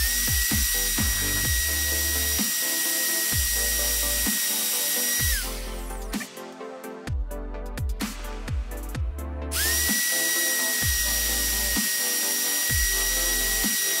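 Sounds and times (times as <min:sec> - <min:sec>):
electric router whining: 0:00.0 - 0:06.0, 0:09.6 - 0:14.0
wood cutting hiss: 0:00.0 - 0:06.4, 0:09.6 - 0:14.0
background music with steady beat: 0:00.0 - 0:14.0.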